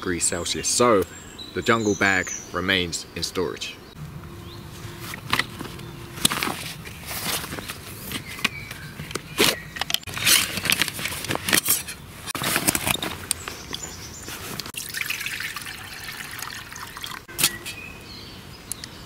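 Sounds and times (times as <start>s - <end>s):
fabric pouch rustling: 4.6s - 14.7s.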